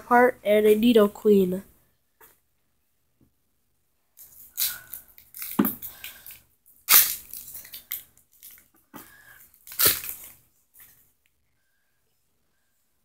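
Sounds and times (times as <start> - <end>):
foil wrapper crinkling and tearing: 4.4 - 8.7, 9.5 - 10.4.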